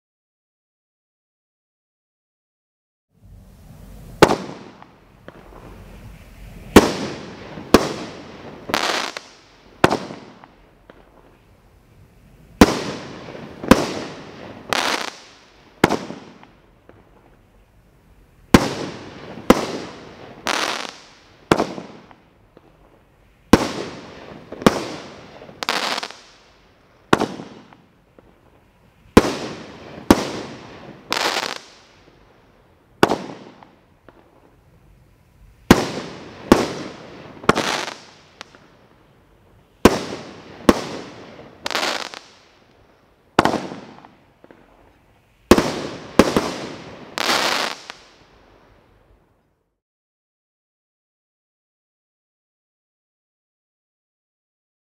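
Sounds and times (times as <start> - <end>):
firework bangs: 3.6 - 11.4, 12.6 - 17.4, 18.5 - 32.2, 33.0 - 34.6, 35.6 - 38.9, 39.8 - 42.6, 43.3 - 48.3.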